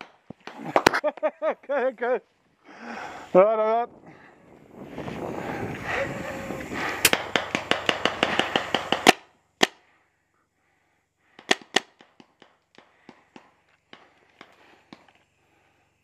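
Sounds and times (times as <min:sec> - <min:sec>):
paintball marker firing: 0:07.0 - 0:09.8, 0:11.4 - 0:15.1.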